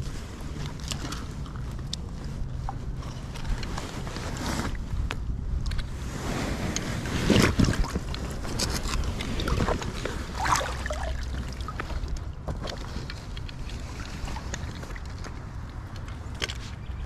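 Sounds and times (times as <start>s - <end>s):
water splashing and sloshing: 0.0s - 16.9s
wind rumble on microphone: 0.0s - 17.0s.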